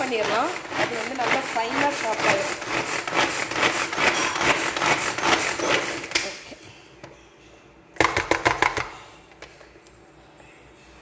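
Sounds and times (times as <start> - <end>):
food chopper blades rattling: 0.0 - 6.2.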